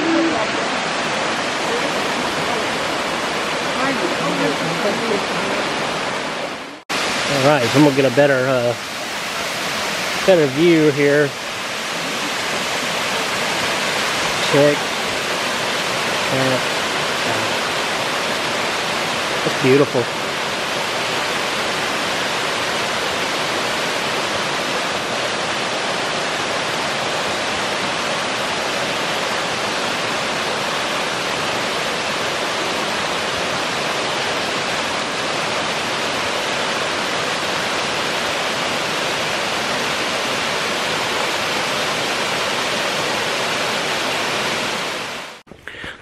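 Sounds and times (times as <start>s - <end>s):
waterfall rushing: 0.0s - 45.8s.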